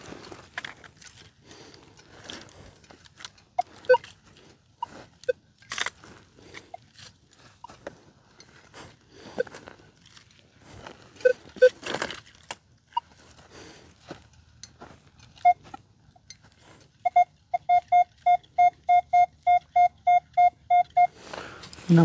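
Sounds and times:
metal detector beeping rapidly: 3.6 - 4.2, 11.2 - 11.8, 15.4 - 15.6, 17.0 - 21.2.

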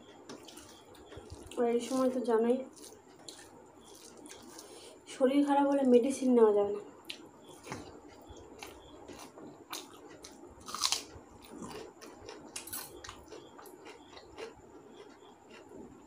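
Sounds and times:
crunchy bite: 8.6 - 15.7.

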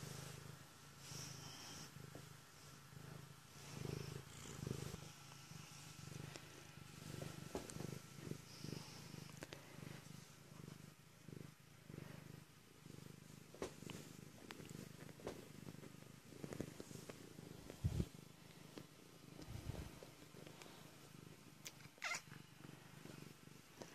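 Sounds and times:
cat purring: 0.0 - 23.9.

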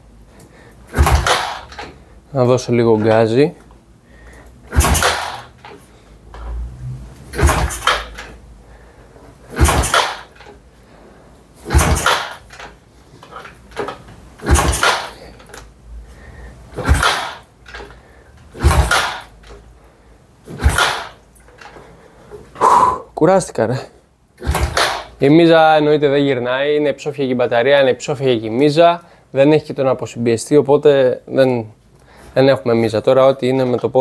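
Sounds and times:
motorcycle engine being kick-started: 0.9 - 2.0, 4.7 - 6.6, 7.2 - 8.4, 9.4 - 10.6, 11.6 - 15.7, 16.7 - 19.6, 20.4 - 21.8, 24.4 - 25.2.

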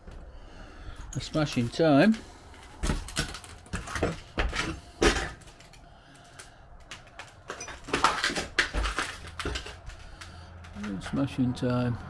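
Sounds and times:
debris knocking underfoot: 2.6 - 5.8, 6.8 - 11.1.

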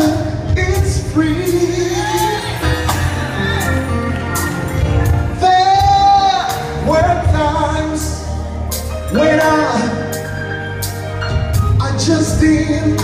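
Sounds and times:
gospel singer holding long notes: 0.0 - 8.5
band with steady bass and beat: 0.0 - 13.0.

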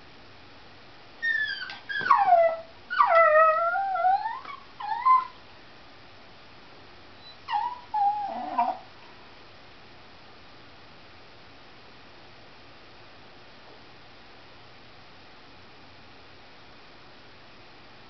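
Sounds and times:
dog whining and yelping: 1.2 - 5.4, 7.2 - 8.9.

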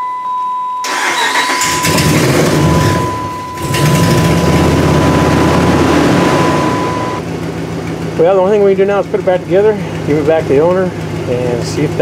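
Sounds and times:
high-pitched tone: 0.0 - 7.2
car engine cranking and running: 0.9 - 12.0.

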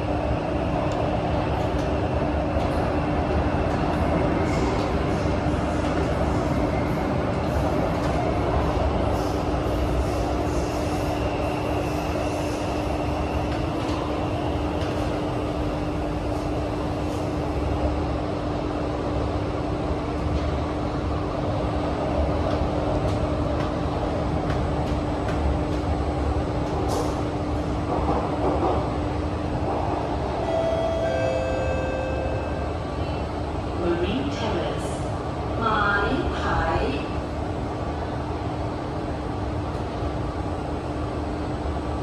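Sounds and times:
train wheels rumbling: 19.8 - 30.7.

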